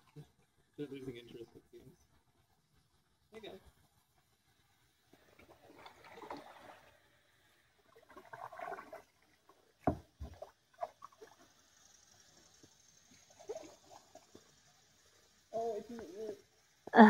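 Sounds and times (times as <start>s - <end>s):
kayak paddle splashing in water: 5.2s - 7.0s, 7.8s - 11.4s
sharp knocks: 9.8s - 10.4s.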